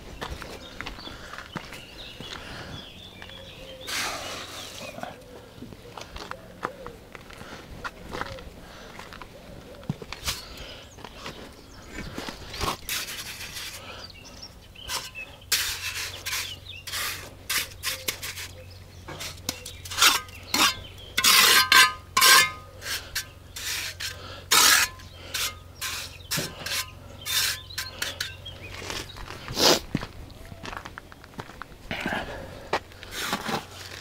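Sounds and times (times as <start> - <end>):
trowel scraping concrete blocks: 12.0 - 29.8, 33.0 - 34.0.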